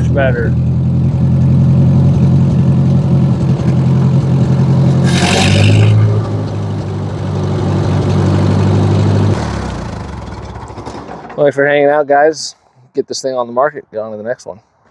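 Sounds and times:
engine shutting off: 0:00.0 - 0:11.4
tractor engine running: 0:00.0 - 0:11.8.

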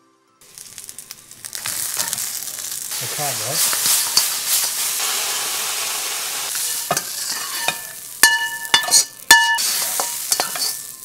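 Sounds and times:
crabs sizzling in a wok: 0:00.4 - 0:11.0
scraping in a wok: 0:00.6 - 0:11.0
metal ladle clanging on wok: 0:06.5 - 0:11.0.

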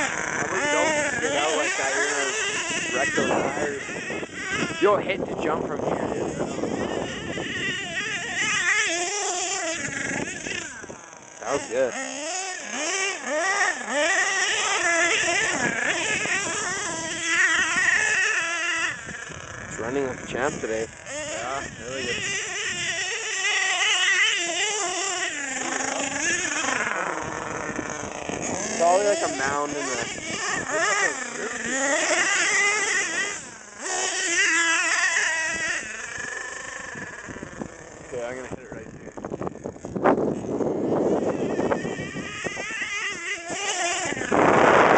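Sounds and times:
toy truck nitro engine revving: 0:00.0 - 0:44.9.

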